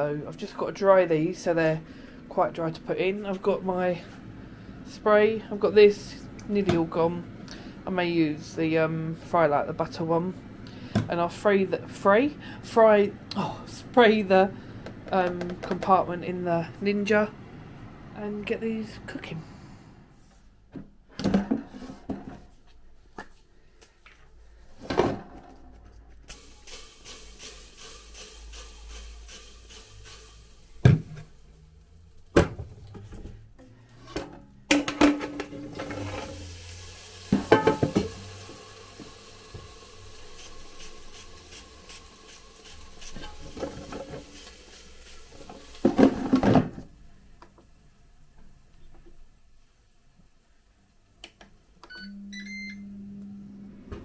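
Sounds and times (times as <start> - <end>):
steady hiss: 26.3 - 32.3, 36.2 - 47.4.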